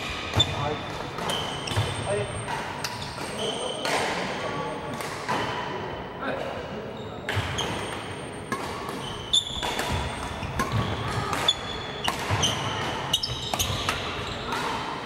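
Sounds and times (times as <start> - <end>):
racket hitting shuttlecock: 7.3 - 15.0.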